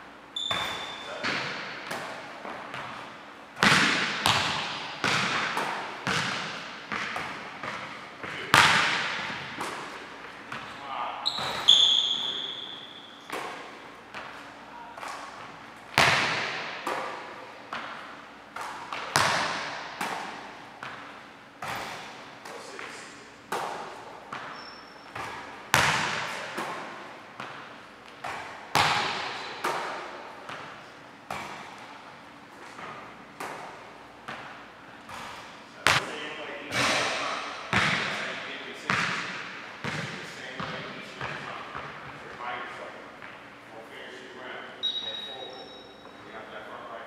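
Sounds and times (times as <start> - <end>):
basketball bouncing on hardwood court: 0.4 - 3.0, 3.6 - 9.8, 10.5 - 12.7, 15.9 - 17.9, 18.6 - 22.1, 23.5 - 31.8, 37.7 - 38.2, 38.9 - 42.2.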